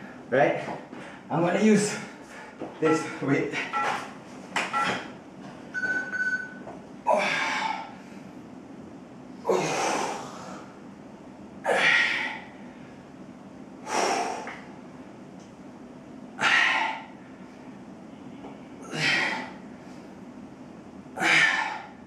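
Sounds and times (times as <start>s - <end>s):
man exhaling forcefully: 9.4s - 10.7s, 13.8s - 14.6s, 21.2s - 22.0s.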